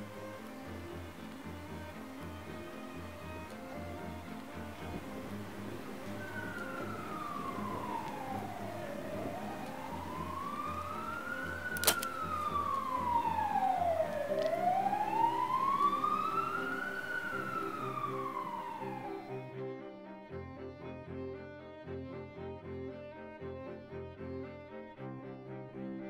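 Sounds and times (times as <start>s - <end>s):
siren wailing: 0.0s - 19.6s
low string music: 0.0s - 26.0s
sharp click: 11.7s - 12.2s.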